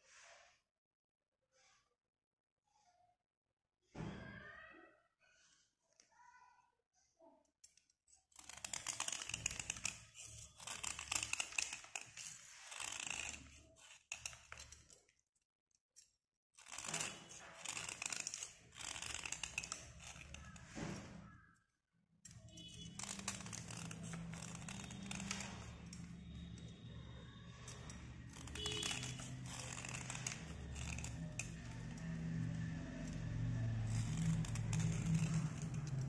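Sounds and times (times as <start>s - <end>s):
knife blade scraping pencil: 8.1s - 15.1s, 16.0s - 21.5s, 22.3s - 36.0s.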